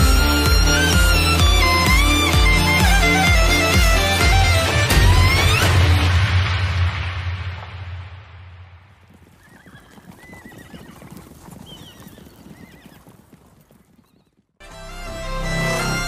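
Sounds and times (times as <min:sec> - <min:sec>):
music: 0:00.0 - 0:07.0, 0:14.6 - 0:16.0
clopping hooves: 0:09.0 - 0:14.6.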